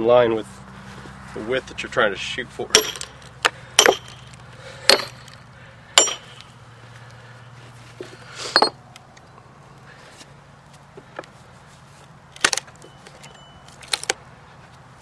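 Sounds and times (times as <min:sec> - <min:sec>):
hammer striking steel wedges: 0:02.7 - 0:05.4, 0:06.0 - 0:06.5, 0:08.5 - 0:08.8
metallic clank: 0:02.7 - 0:05.4, 0:06.0 - 0:06.4, 0:08.5 - 0:08.8.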